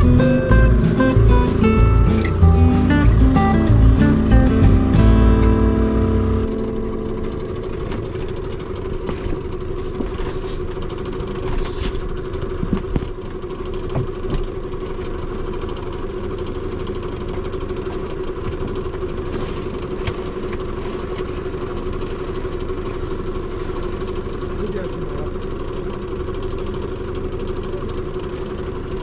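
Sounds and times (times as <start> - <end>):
boat engine humming: 0.0 - 29.0.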